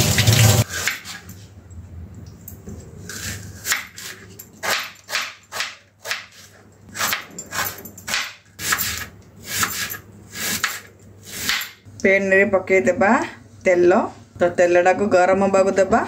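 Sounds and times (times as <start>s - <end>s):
knife slicing onions on board: 0.7s - 1.3s, 3.0s - 11.8s.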